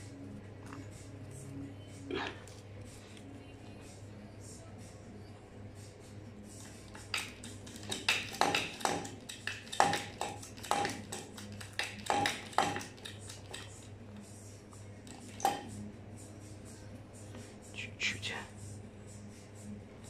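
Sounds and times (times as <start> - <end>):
steady low hum: 0.0 - 7.9, 13.0 - 20.0.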